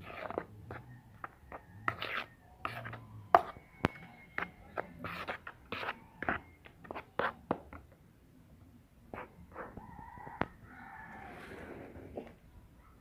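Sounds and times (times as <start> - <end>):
spoon scraping plastic bowl: 0.0 - 7.8.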